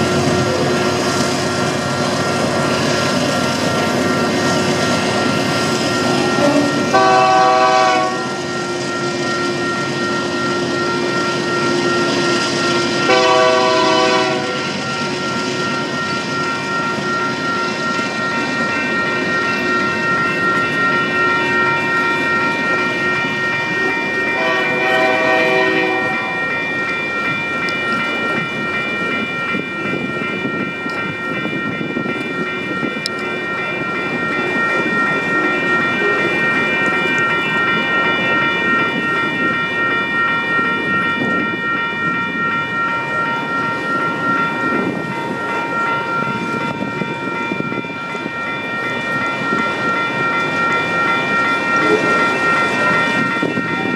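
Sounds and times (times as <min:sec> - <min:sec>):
freight train rolling past: 0:00.0 - 0:53.9
wheels clacking on rails: 0:00.0 - 0:53.9.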